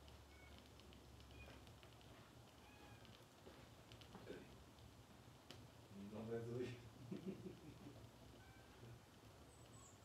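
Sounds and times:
faint ticks: 0.0 - 5.7.

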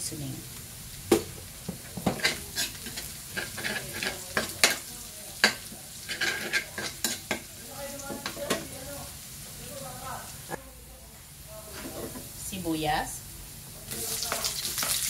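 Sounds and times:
garlic sizzling in oil: 0.0 - 10.6, 11.3 - 15.0
metal ladle scraping a wok: 2.1 - 4.8, 5.4 - 7.5.

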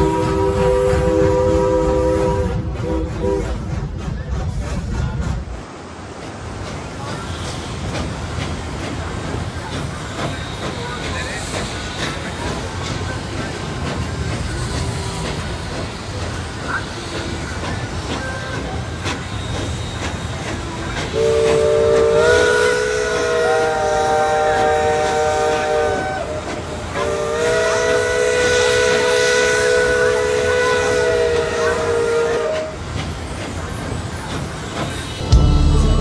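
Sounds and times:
steam whistle blasts: 0.0 - 3.6, 21.1 - 32.8
train rumble and clatter: 0.0 - 36.0.

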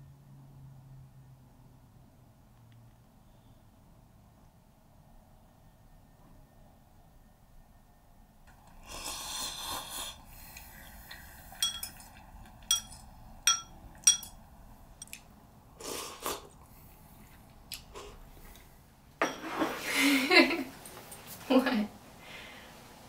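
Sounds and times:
sharp metallic clinks: 11.6 - 12.0, 12.7 - 14.4.

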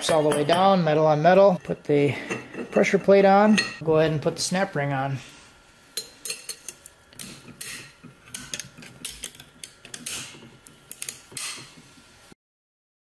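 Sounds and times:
metallic clicks and scrapes: 6.3 - 11.8.

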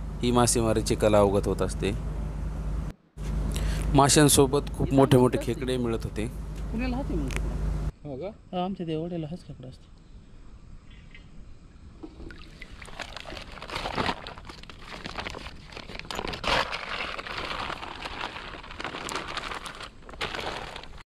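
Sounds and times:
plastic bag crinkling: 12.8 - 21.0.

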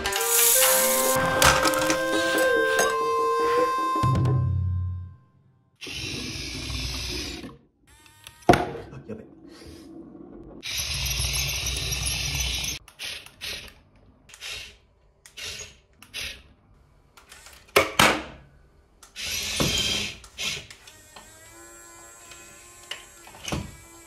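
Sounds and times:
toy electric motors whirring: 0.0 - 4.0, 10.6 - 16.4, 19.0 - 24.0.

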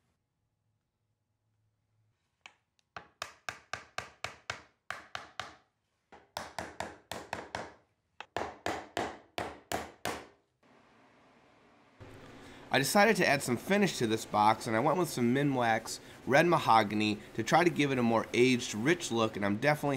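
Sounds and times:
hammer tapping wood: 3.0 - 10.3.

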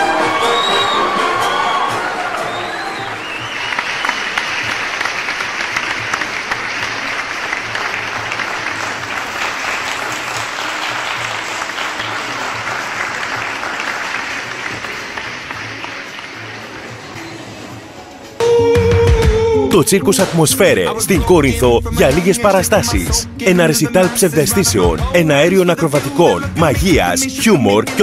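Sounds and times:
audience clapping: 0.0 - 17.2
background music with low beat: 18.4 - 28.0.

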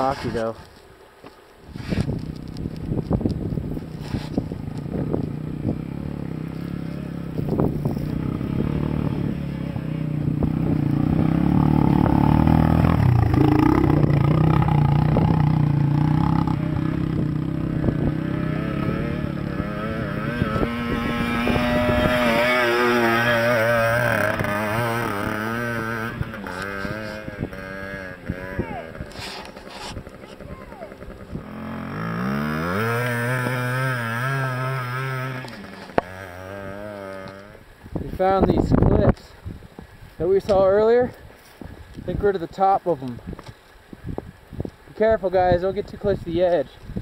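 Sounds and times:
dirt bike engines revving: 1.8 - 39.3.

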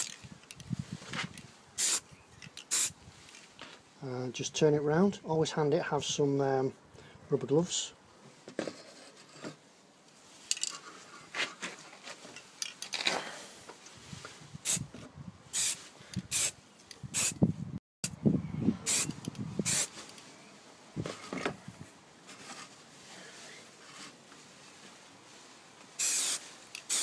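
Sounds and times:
aerosol spray paint hissing: 1.8 - 2.0, 2.7 - 3.0, 15.5 - 17.4, 18.8 - 19.9, 26.0 - 27.0.

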